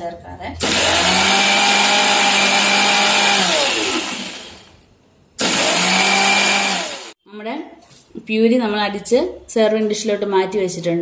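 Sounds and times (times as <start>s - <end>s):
mixer grinder motor running: 0.6s - 4.8s, 5.4s - 7.2s
motor spinning down: 0.6s - 4.8s, 5.4s - 7.1s.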